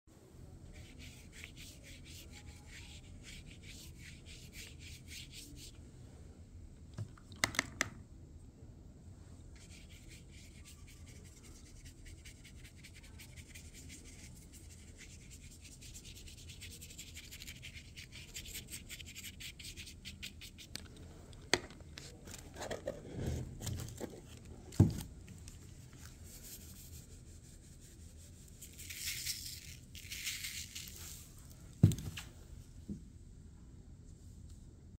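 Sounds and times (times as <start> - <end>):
paintbrush scratching on paper: 0.7 - 5.8, 9.6 - 20.7, 26.0 - 31.1.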